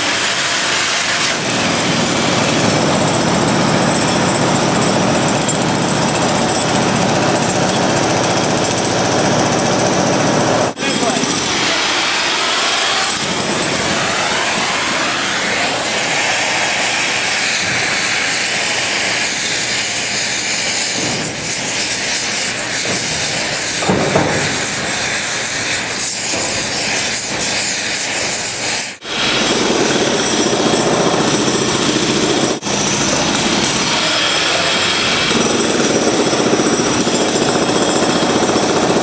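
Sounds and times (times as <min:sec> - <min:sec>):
rough loud noise: 0:00.0 - 0:31.3
torch flame hissing: 0:11.5 - 0:29.3.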